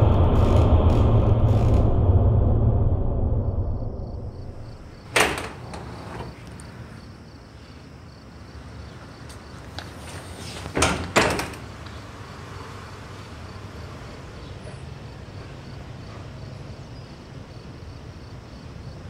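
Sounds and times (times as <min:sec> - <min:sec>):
steady low hum: 0:00.0 - 0:07.1.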